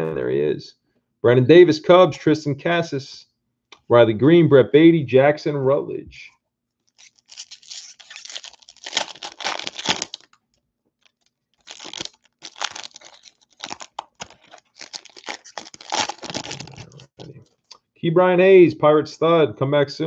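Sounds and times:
foil wrapper crinkling and tearing: 6.8s - 17.4s.

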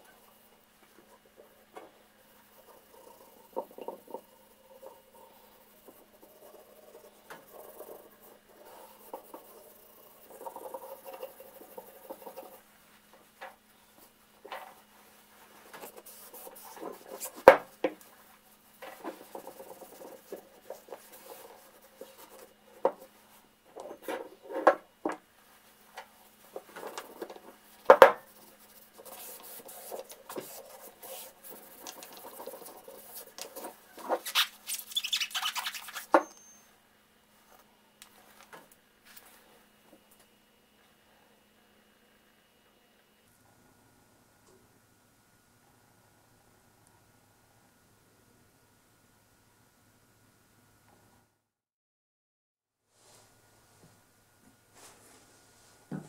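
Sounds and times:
towel rubbing on metal: 28.2s - 36.2s.

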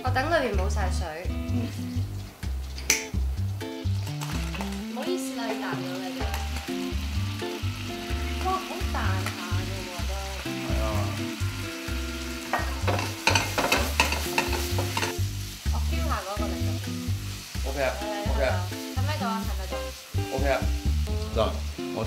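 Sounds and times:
vegetables sizzling in butter: 0.1s - 22.0s
pan and utensil clacks: 4.1s - 6.7s, 12.5s - 15.2s.

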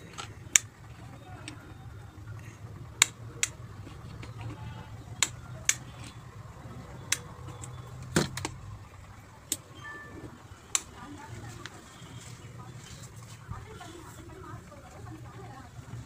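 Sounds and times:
low steady hum: 0.0s - 16.0s
wall switches clicking: 3.0s - 4.4s, 5.1s - 6.2s, 7.0s - 8.6s.

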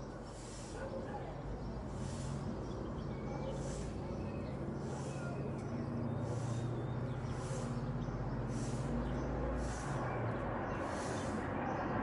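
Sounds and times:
jet airliner rumble overhead: 3.6s - 12.0s.

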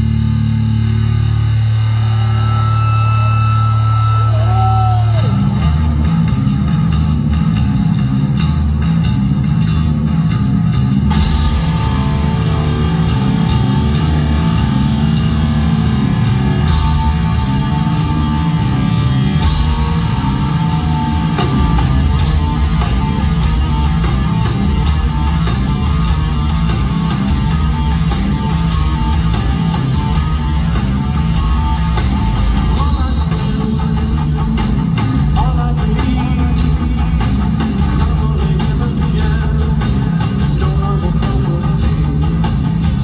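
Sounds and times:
heavy rock band playing live: 0.0s - 43.0s
rapid drum and cymbal strokes: 11.1s - 13.7s, 16.7s - 18.2s, 19.4s - 43.0s.

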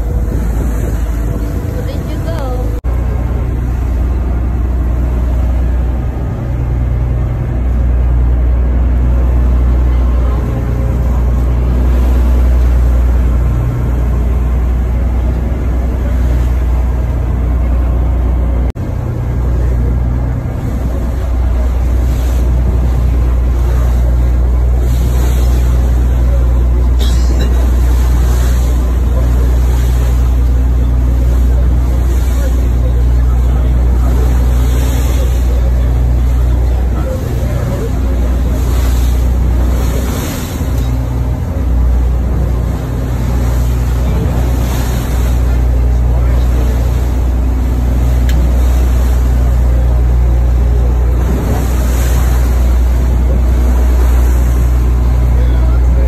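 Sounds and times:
wind noise: 0.0s - 2.4s
boat engine droning: 0.0s - 56.0s
rushing water: 0.0s - 56.0s.

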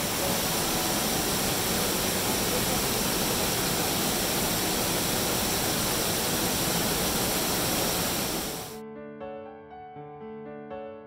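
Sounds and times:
waterfall rushing: 0.0s - 8.8s
piano music: 8.6s - 11.0s.

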